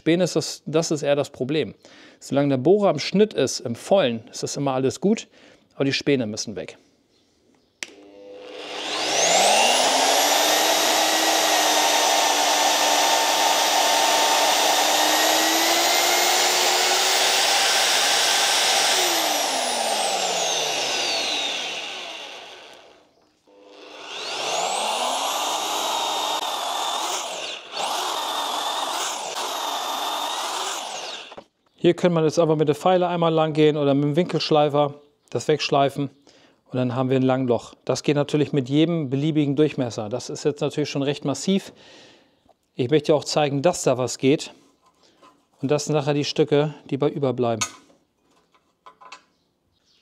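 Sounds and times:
core drill motor whining: 0:07.8 - 0:31.5
cutter drilling steel tube: 0:08.0 - 0:31.5.

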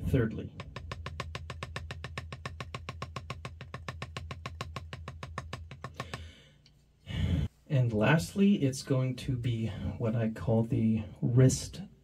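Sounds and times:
drumstick tapping practice pad: 0:00.0 - 0:06.4.

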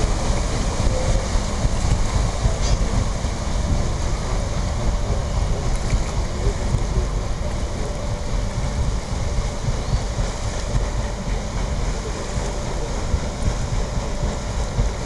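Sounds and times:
river water sloshing: 0:00.0 - 0:15.0
wind buffeting microphone: 0:00.0 - 0:15.0.

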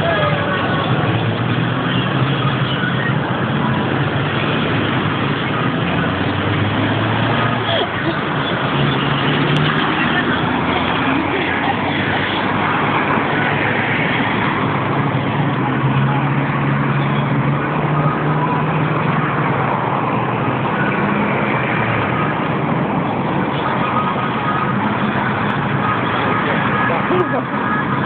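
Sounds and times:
road traffic: 0:00.0 - 0:28.0.

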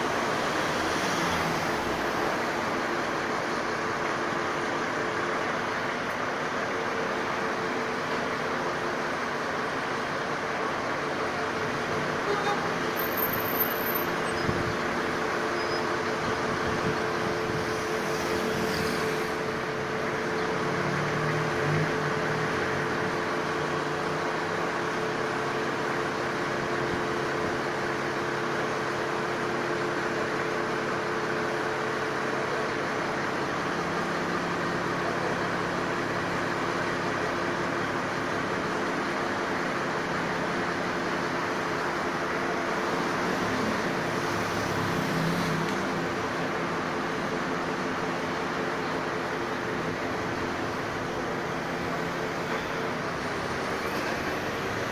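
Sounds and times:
street noise: 0:00.0 - 0:54.9
crane engine humming: 0:45.8 - 0:54.9.

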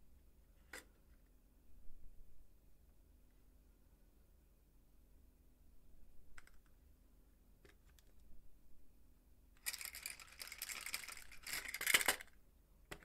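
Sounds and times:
rapid small clicks and clatter: 0:09.6 - 0:12.3.

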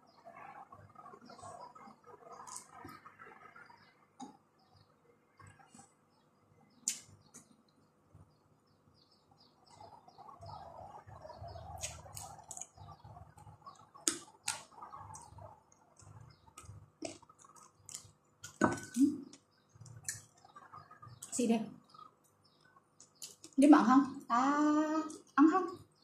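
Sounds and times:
lip smacks: 0:06.8 - 0:07.5, 0:11.8 - 0:12.7
person chewing: 0:11.8 - 0:12.8, 0:16.0 - 0:20.3.

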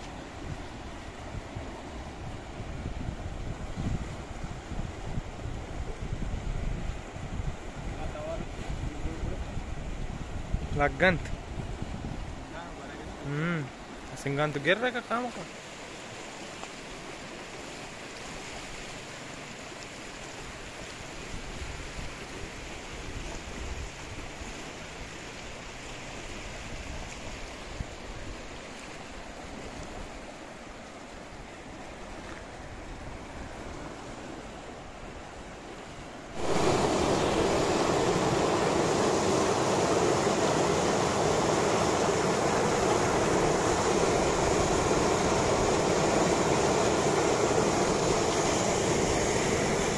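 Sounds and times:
wind on microphone: 0:00.0 - 0:12.6, 0:36.3 - 0:49.9
floodwater rushing: 0:11.0 - 0:49.9.

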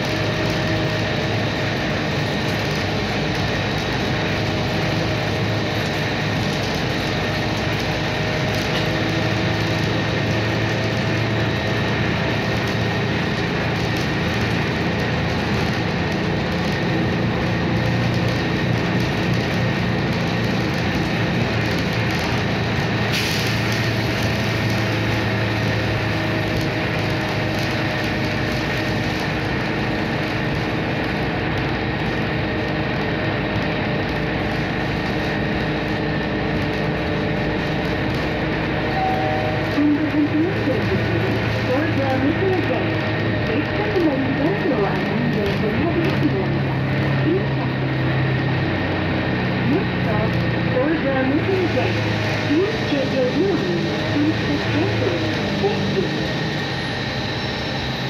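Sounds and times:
bus engine and road drone: 0:00.0 - 0:58.0
faint high whine: 0:38.9 - 0:40.0.

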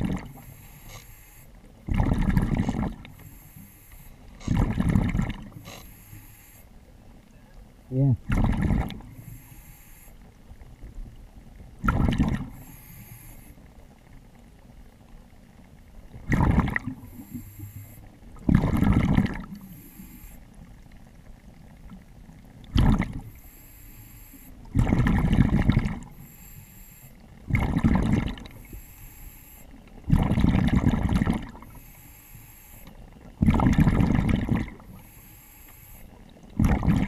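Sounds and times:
faint hissing: 0:00.0 - 0:01.8, 0:03.0 - 0:04.6, 0:05.5 - 0:08.2, 0:09.0 - 0:11.2, 0:12.5 - 0:14.1, 0:16.8 - 0:18.2, 0:19.4 - 0:20.9, 0:23.2 - 0:24.7, 0:26.0 - 0:27.4, 0:28.5 - 0:29.9, 0:31.6 - 0:33.1, 0:34.8 - 0:36.5
diver breathing gushes: 0:00.0 - 0:06.7, 0:08.4 - 0:10.2, 0:12.5 - 0:13.6.

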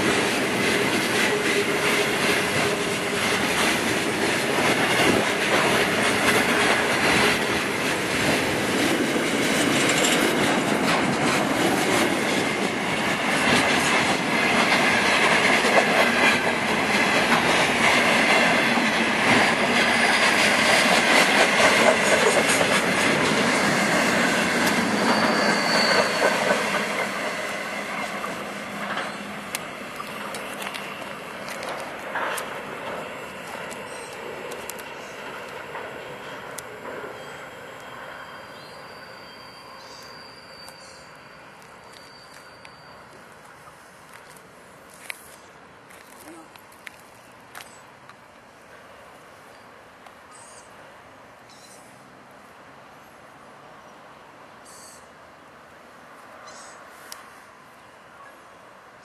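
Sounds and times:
train wagons rolling on rails: 0:00.0 - 0:59.0
high wheel squeal: 0:23.5 - 0:29.4, 0:36.1 - 0:43.7.

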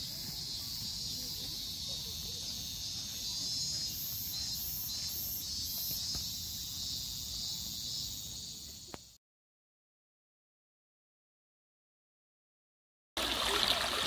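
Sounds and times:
high-pitched insect chorus: 0:00.0 - 0:09.2.

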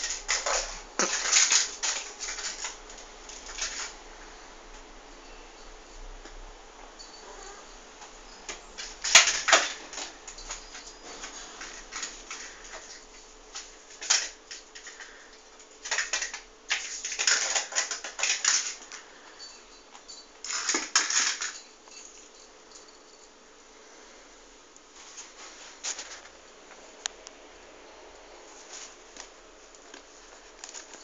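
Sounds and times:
claws and toy skittering on tiles: 0:00.0 - 0:04.0, 0:08.4 - 0:23.3.

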